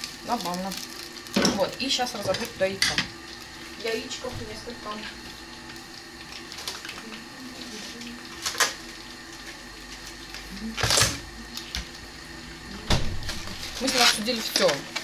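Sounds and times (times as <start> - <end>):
refrigerator door thumping shut: 12.8 - 13.4
knock of items moved in fridge: 12.8 - 13.6.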